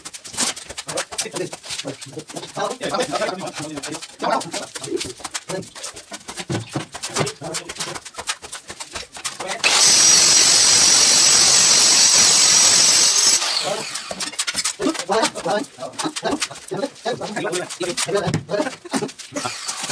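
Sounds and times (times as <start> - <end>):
trowel scraping and slapping mortar: 0.0 - 19.9
power tool whine: 9.6 - 14.3, 19.4 - 19.9.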